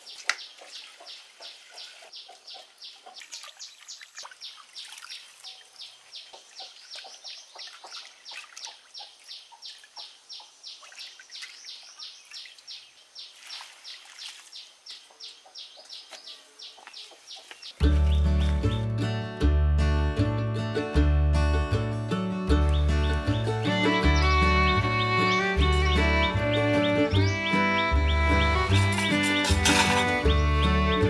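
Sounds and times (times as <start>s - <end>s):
splashes in basin of water: 3.1s - 10.0s, 13.3s - 14.6s.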